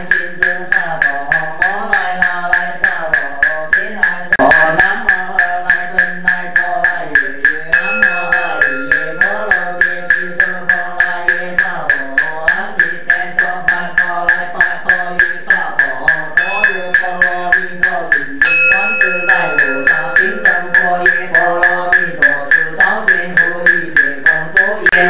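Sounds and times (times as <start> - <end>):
person chanting slowly: 0.0 - 25.0
small hand bell ringing: 7.8 - 10.0, 16.4 - 17.6, 18.4 - 21.4.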